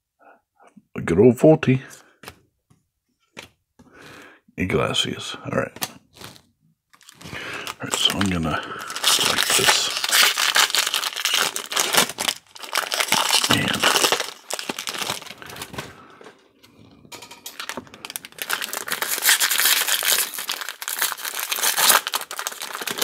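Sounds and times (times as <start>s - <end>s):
cards rustling: 5.7s - 23.0s
foil wrappers crinkling: 6.1s - 16.4s, 17.2s - 23.0s.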